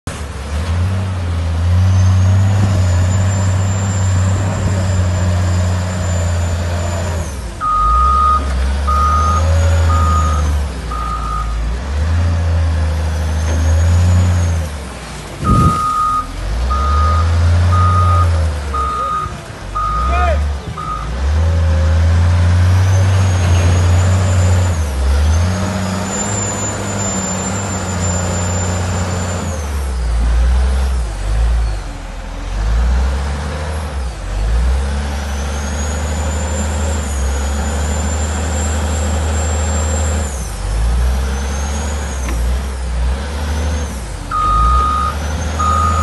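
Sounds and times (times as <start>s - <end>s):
diesel engine revving: 0.0s - 46.0s
reversing alarm beeping: 7.6s - 11.6s, 15.4s - 21.2s, 44.3s - 46.0s.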